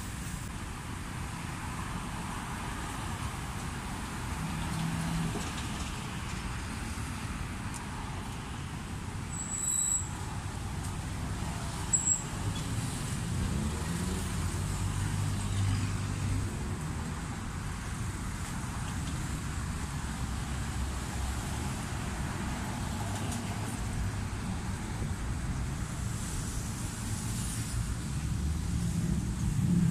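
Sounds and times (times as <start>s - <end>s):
vehicle engine rumble: 0.0s - 29.9s.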